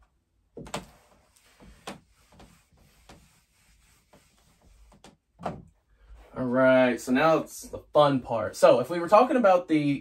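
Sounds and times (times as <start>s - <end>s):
faint rubbing and scraping: 0.7s - 7.9s.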